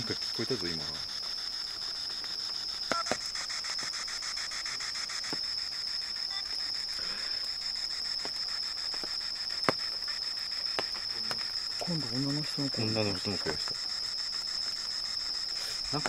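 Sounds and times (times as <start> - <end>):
high insect trill: 0.0 - 16.0
radio static hiss with ticks: 0.0 - 16.0
sharp clicks: 2.2 - 3.9.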